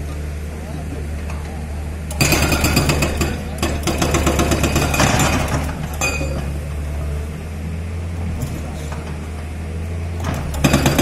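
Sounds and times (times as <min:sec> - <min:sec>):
diesel engine humming: 0:00.0 - 0:11.0
hydraulic breaker hammering: 0:02.1 - 0:06.4, 0:10.2 - 0:11.0.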